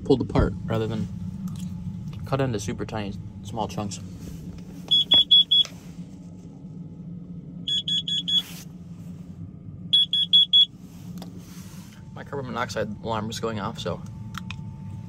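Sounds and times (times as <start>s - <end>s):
alarm high-pitched beeps: 4.9s - 5.7s, 7.7s - 8.5s, 9.9s - 10.7s.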